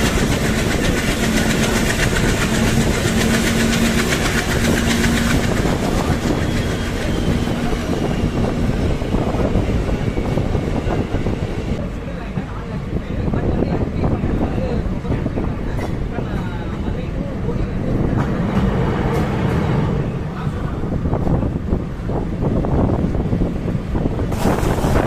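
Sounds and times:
train wheels rumbling on track: 0:00.0 - 0:25.0.

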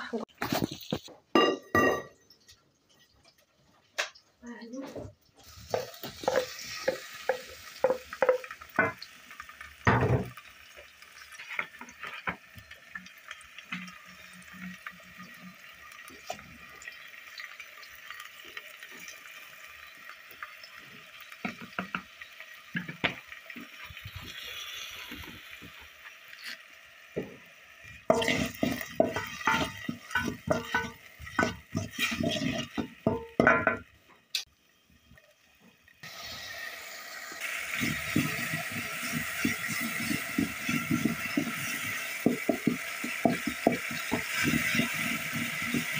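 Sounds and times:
frying sizzle: 0:00.0 - 0:45.9
wooden spoon stirring in metal pot: 0:04.9 - 0:09.1, 0:28.0 - 0:33.9, 0:37.4 - 0:45.9
spoon knocking against pot: 0:28.1 - 0:31.6.

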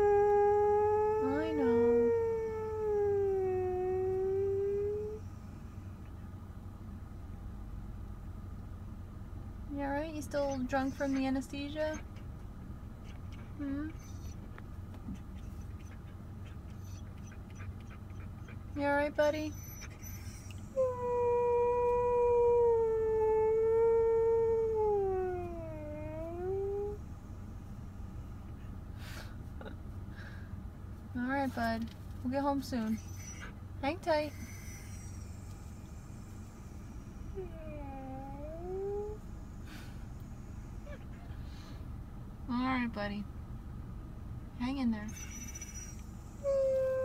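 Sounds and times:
dog howling: 0:00.0 - 0:05.2, 0:19.5 - 0:27.0, 0:36.8 - 0:39.2, 0:46.4 - 0:47.0
low steady hum: 0:00.0 - 0:47.0.

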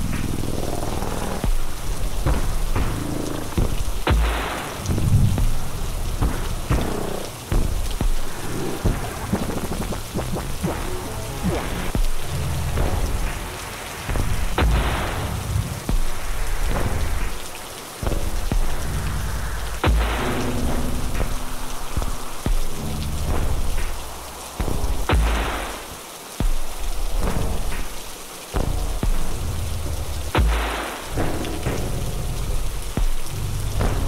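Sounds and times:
thunder-like rumble: 0:00.0 - 0:17.4
rain hiss: 0:00.0 - 0:34.0
sharp crack: 0:02.2 - 0:12.1, 0:19.5 - 0:26.0, 0:30.3 - 0:32.0.

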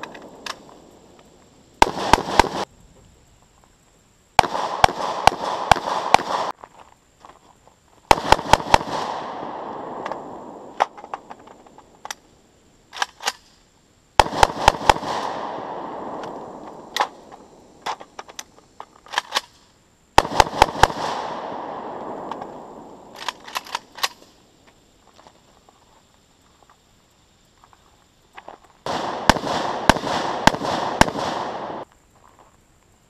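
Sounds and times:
rifle shots with echo: 0:01.8 - 0:02.7, 0:04.4 - 0:06.5, 0:08.1 - 0:11.2, 0:14.2 - 0:17.6, 0:20.2 - 0:24.2, 0:28.9 - 0:31.8.

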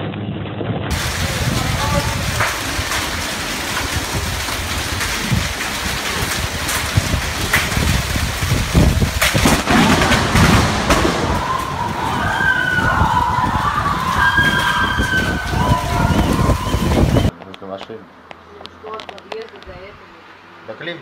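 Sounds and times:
heavy rain pouring: 0:00.9 - 0:17.3
low thunder rumbling: 0:00.9 - 0:17.3
sharp thunder cracks: 0:00.9 - 0:17.3.

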